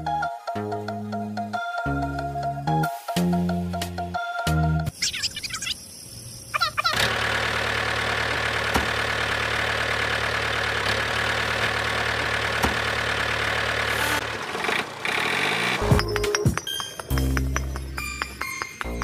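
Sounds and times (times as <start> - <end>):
high wavering calls: 4.9 - 7.0
toy tractor engine drone: 6.6 - 15.9.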